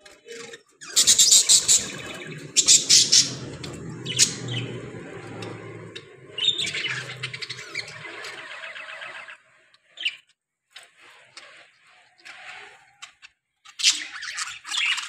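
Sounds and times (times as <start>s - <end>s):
budgerigars chattering and squawking: 0.8s - 9.4s.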